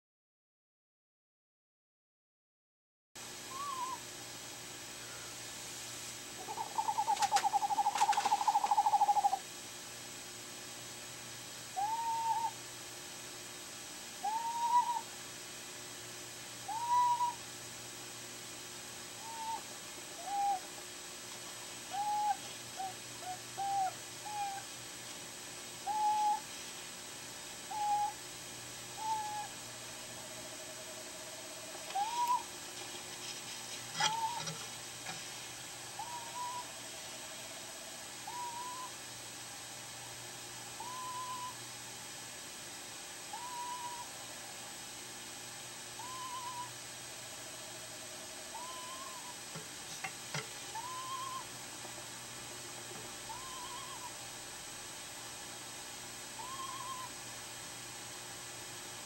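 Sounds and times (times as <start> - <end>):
low steady owl note: 3.4 - 4.2, 11.7 - 12.6, 14.2 - 15.1, 16.6 - 17.5, 19.2 - 20.8, 25.8 - 35.2, 35.8 - 41.7, 43.3 - 44.6, 46.0 - 49.5, 50.7 - 51.6, 53.2 - 54.4, 56.4 - 57.2
owl calling: 3.5 - 4.1, 6.4 - 9.5, 11.8 - 12.6, 14.2 - 15.1, 16.6 - 17.4, 19.2 - 20.8, 21.9 - 24.7, 25.8 - 26.5, 27.6 - 28.2, 28.9 - 32.6, 34.0 - 34.7, 35.9 - 39.1, 40.7 - 41.6, 43.3 - 44.3, 46.0 - 46.8, 47.4 - 50.0, 50.6 - 51.6, 53.2 - 54.3, 56.3 - 57.2.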